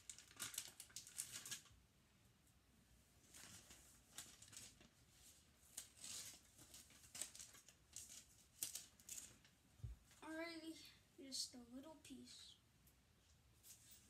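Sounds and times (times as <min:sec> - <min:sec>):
paper rustling: 0:00.0 - 0:01.7, 0:03.3 - 0:09.5.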